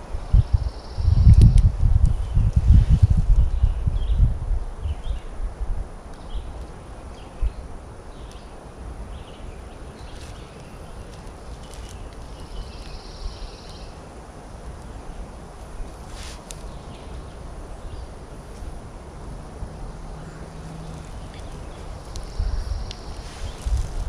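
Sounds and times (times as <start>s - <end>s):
faint bird chirps: 9.2s - 14.0s.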